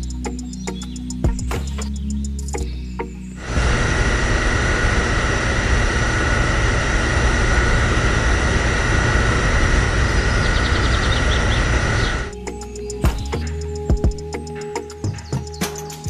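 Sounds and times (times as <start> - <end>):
fuel pump whining: 3.4 - 15.3.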